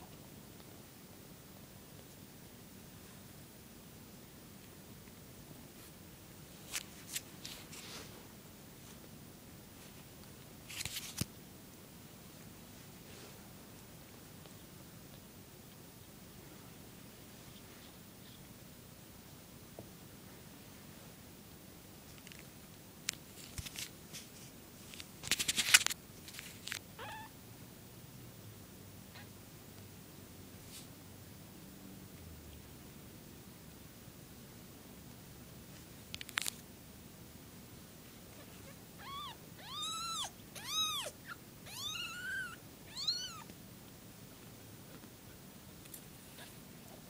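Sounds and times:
rustles and clicks of handling: 6.6 - 9.1, 9.8 - 11.4, 22.0 - 26.9, 35.7 - 36.6
kitten mewing: 38.4 - 43.5.

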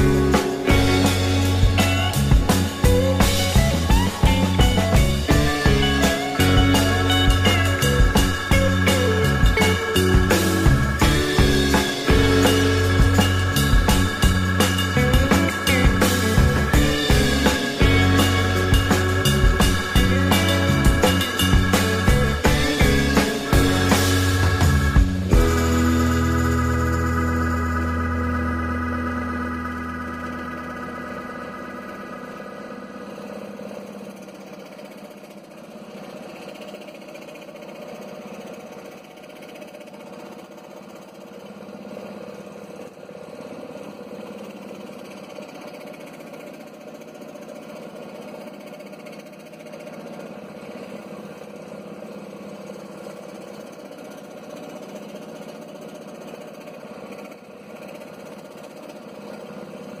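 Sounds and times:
organ music: 0.0 - 33.4.

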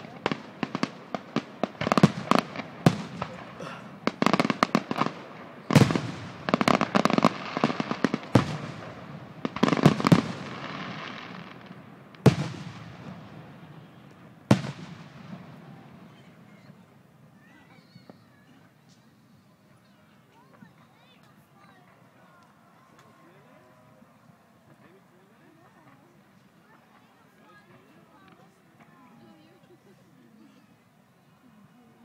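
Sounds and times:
fireworks crackling bangs: 0.0 - 19.1
loud fireworks reports: 0.0 - 29.3.

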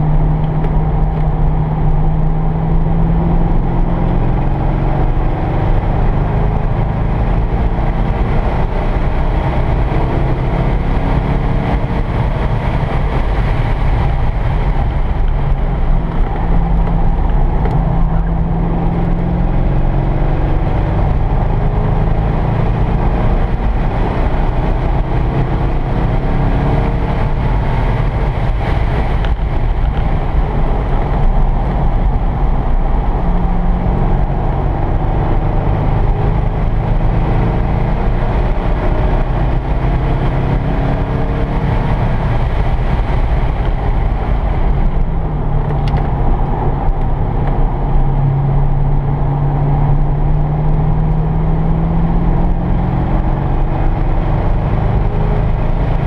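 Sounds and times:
car engine revving: 0.0 - 56.0
road noise inside car: 0.0 - 56.0.

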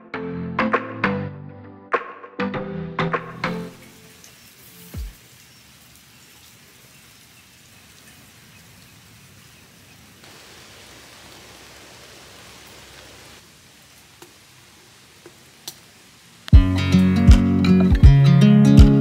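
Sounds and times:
steady rain falling: 3.6 - 18.0.

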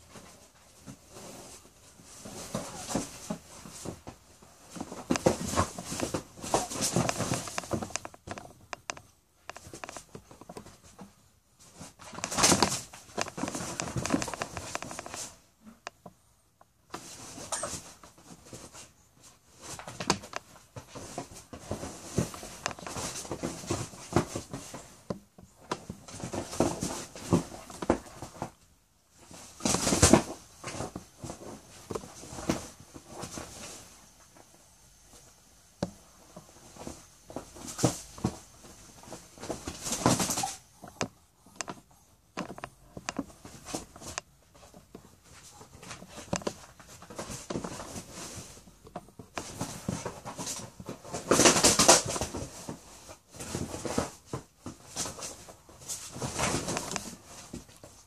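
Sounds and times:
animals scuffling on couch: 0.0 - 8.5, 16.9 - 34.1, 36.0 - 41.0, 42.4 - 58.0.

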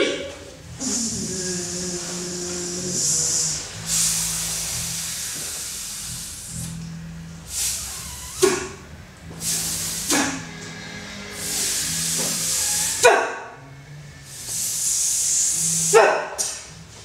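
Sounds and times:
sharp vocal syllable: 0.0 - 4.5
woman making breathy hisses: 0.8 - 6.8, 7.5 - 8.8, 9.4 - 10.5, 11.4 - 13.1, 14.3 - 16.6.

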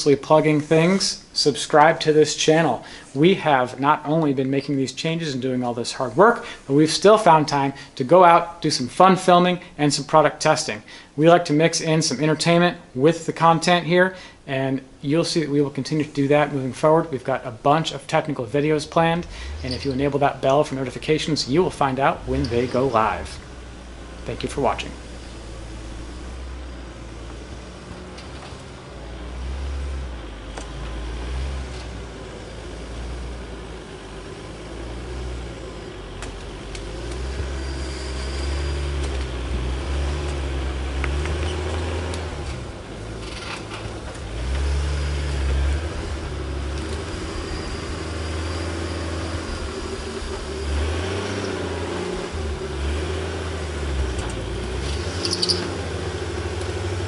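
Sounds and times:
engine running at low revs: 19.2 - 57.0.

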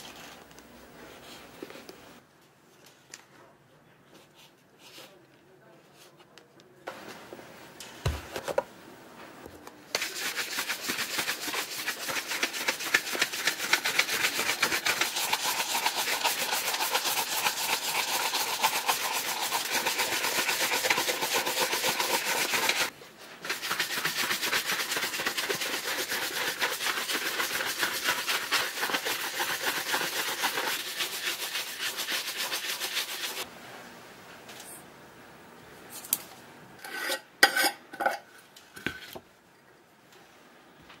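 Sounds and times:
shoe brush scrubbing leather: 10.0 - 33.5.

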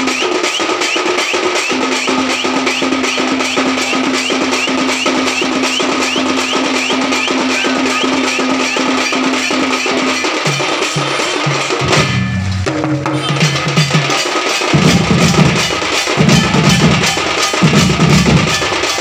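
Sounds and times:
fast drumming on large drums: 0.0 - 19.0
metallic gong strokes: 9.2 - 13.7.

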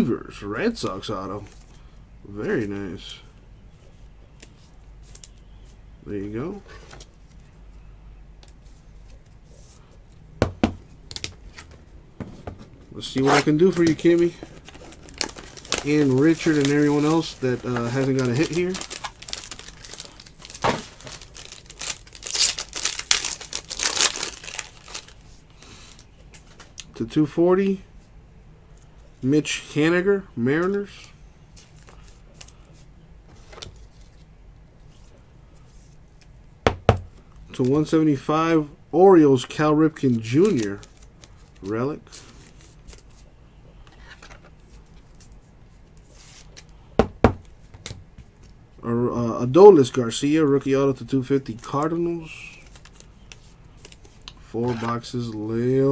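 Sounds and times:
cards rustling and sliding: 13.0 - 26.6, 40.1 - 46.8, 52.6 - 55.2
foil wrapper crinkling and tearing: 13.5 - 26.1, 40.1 - 43.1.

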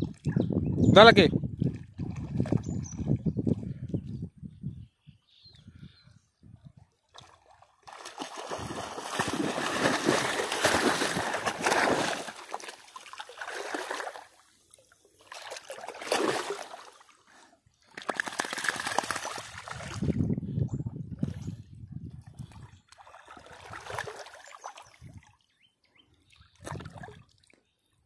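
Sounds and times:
dog splashing through water: 7.1 - 14.4, 15.2 - 17.1, 17.9 - 20.2, 22.9 - 24.9.

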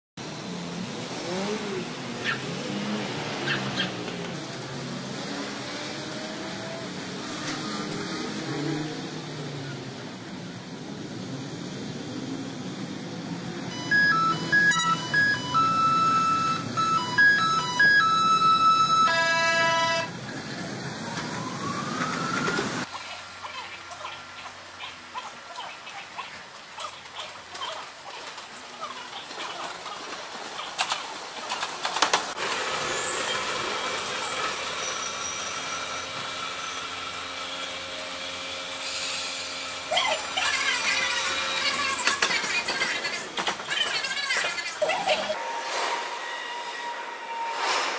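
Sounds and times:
electric train running hum: 0.2 - 25.2, 27.5 - 47.8
electronic beeping melody: 13.7 - 19.6.

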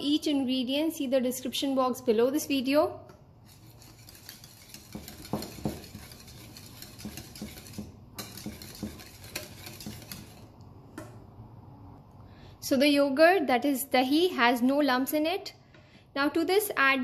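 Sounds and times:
whisk scraping a ceramic bowl: 3.4 - 10.6.

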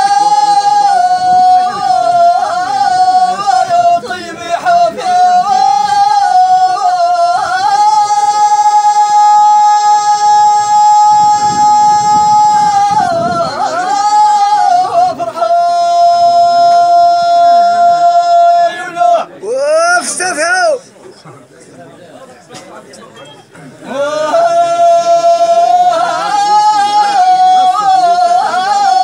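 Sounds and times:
man singing unaccompanied chant: 0.0 - 20.8, 23.8 - 29.0.

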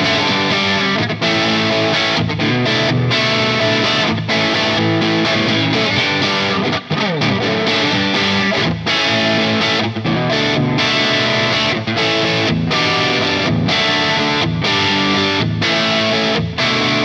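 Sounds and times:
distorted electric guitar: 0.0 - 17.0.

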